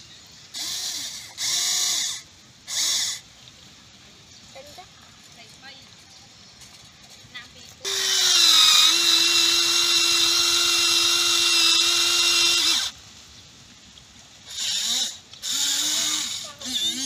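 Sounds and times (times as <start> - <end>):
toy excavator motor whining: 0.5 - 3.2, 7.8 - 13.0, 14.5 - 17.0.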